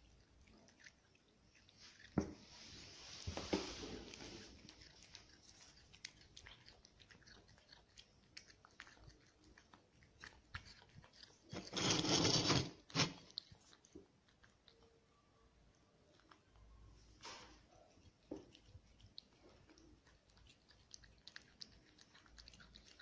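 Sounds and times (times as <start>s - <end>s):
cat chewing: 0.0s - 23.0s.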